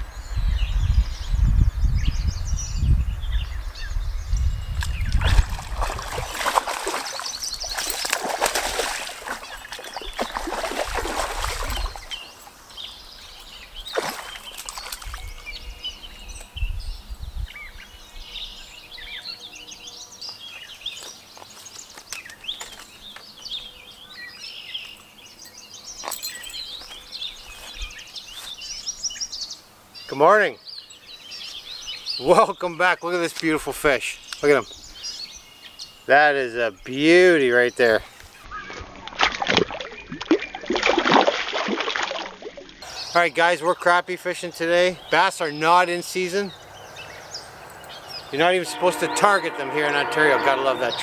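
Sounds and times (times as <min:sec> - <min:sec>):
wind rushing through bushes: 0:00.0 - 0:19.1, 0:44.8 - 0:49.5
wind rumbling on microphone: 0:00.0 - 0:19.2, 0:27.2 - 0:28.0
songbirds chirping: 0:00.0 - 0:40.8, 0:42.0 - 0:51.0.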